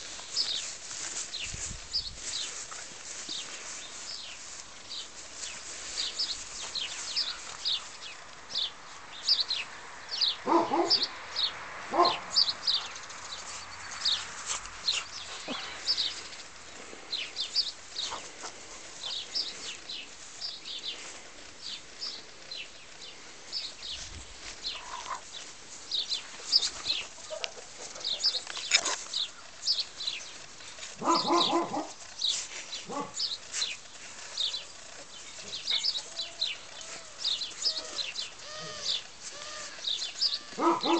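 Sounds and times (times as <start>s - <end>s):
birds chirping: 0.0s - 40.9s
puppies yipping and whining: 35.7s - 39.8s.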